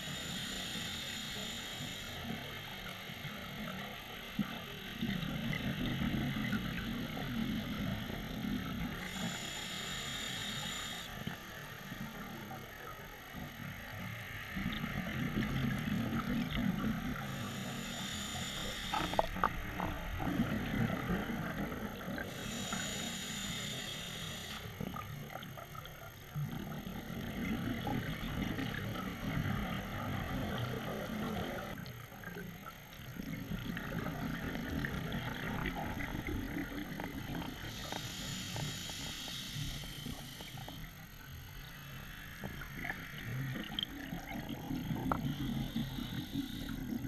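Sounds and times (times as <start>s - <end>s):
regulator hissing inhalation: 0.0s - 2.4s, 8.9s - 11.4s, 17.2s - 19.5s, 22.2s - 24.9s, 37.6s - 40.8s.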